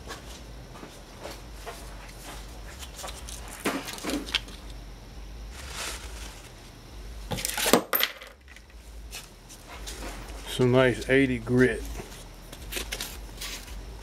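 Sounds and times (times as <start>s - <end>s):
rustling scrape: 5.5s - 6.7s, 11.9s - 13.8s.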